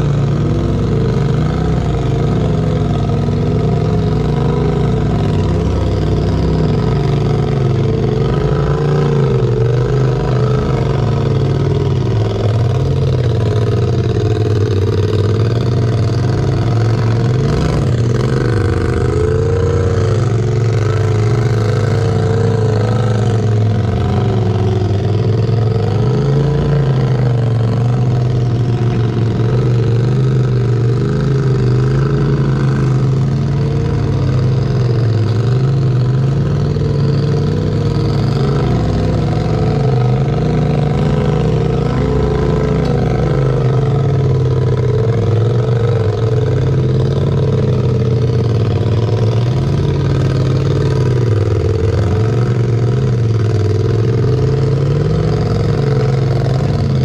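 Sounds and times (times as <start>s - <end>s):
vehicle engine running: 0.0s - 57.0s.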